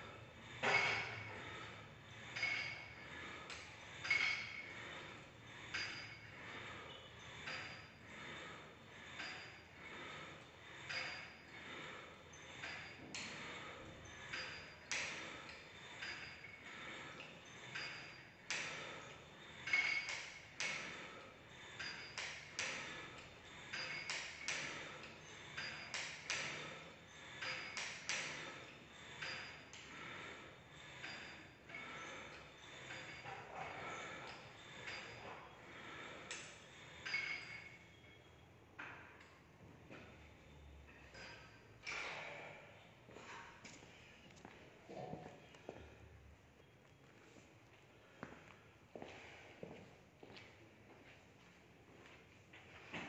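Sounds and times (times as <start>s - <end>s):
metal weight stack clinking: 0.3s - 38.1s.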